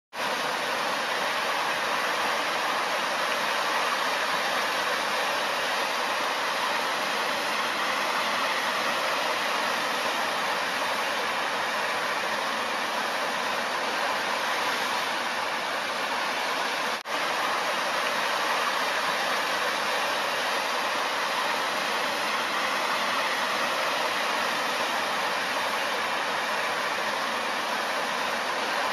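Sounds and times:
fountain water splashing: 0.2s - 28.9s.

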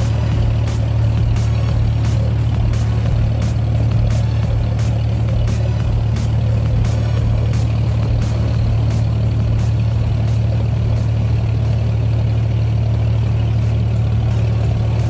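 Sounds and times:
boat diesel engine running: 0.0s - 15.0s.

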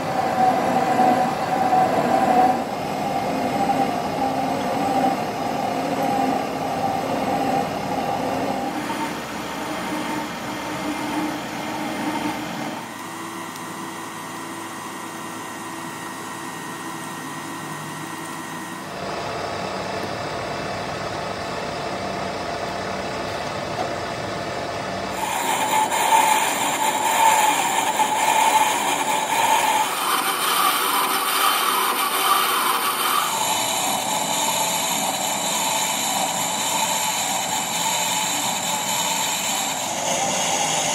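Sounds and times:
lathe running: 0.0s - 40.9s
cutting tool scraping iron: 25.1s - 40.9s.

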